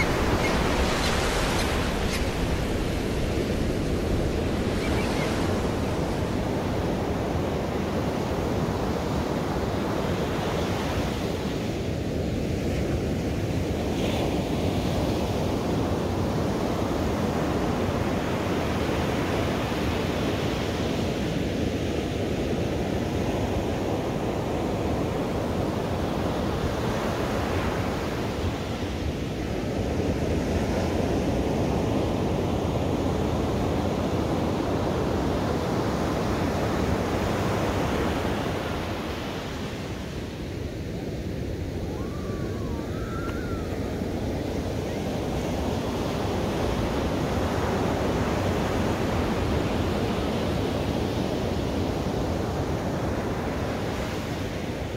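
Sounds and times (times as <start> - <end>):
waves breaking on shore: 0.0 - 21.2.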